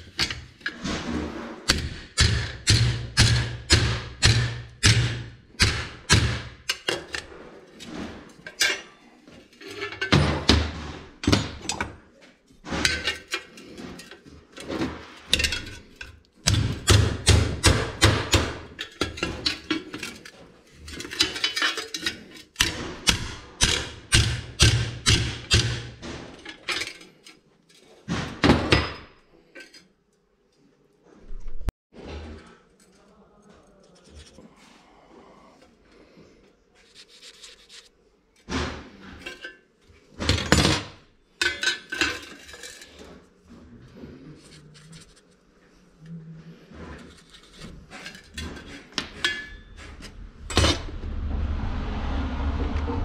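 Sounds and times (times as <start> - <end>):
hammer striking steel: 1.7 - 6.9, 16.5 - 18.7, 22.6 - 26.0.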